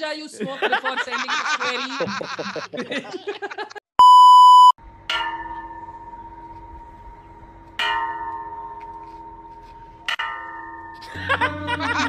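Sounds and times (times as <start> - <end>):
electronic beep: 4.0 - 4.8
bell-like struck notes: 5.0 - 11.6.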